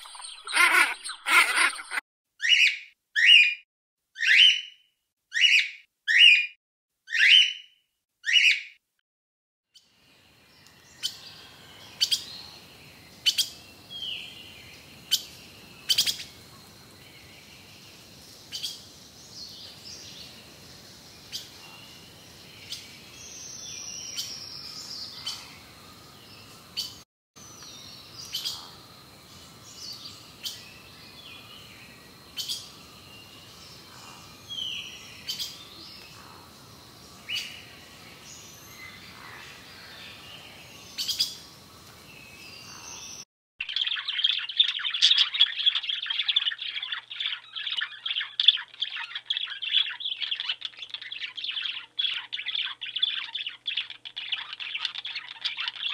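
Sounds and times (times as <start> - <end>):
birds chirping: 0.0 - 3.5, 10.4 - 55.9
faint steady hiss: 9.9 - 43.2.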